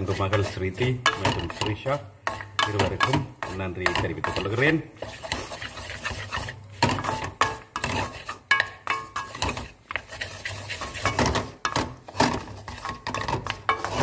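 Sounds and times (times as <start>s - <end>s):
spatula scraping a pan: 0.0s - 14.0s.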